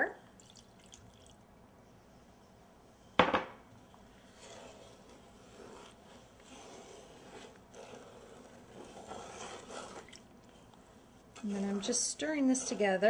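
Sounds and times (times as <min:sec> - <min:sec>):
utensil stirring sugar in a pan: 0:03.8 - 0:13.0.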